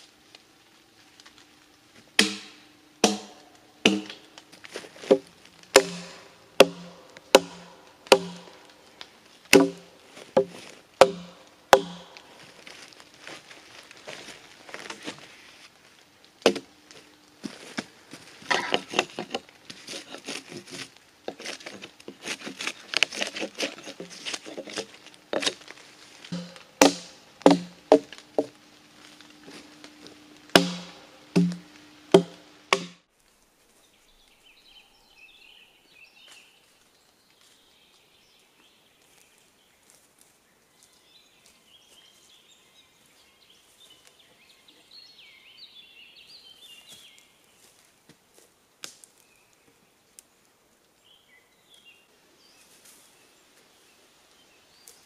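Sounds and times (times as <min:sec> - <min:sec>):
hatchet chopping into log: 0:02.2 - 0:04.2, 0:05.8 - 0:08.6, 0:09.5 - 0:12.2, 0:26.3 - 0:28.5, 0:30.5 - 0:31.6, 0:32.2 - 0:33.0
hatchet scraping wood: 0:02.2 - 0:04.2, 0:05.0 - 0:08.6, 0:09.5 - 0:12.2, 0:18.4 - 0:25.7, 0:26.3 - 0:28.5, 0:30.5 - 0:33.0.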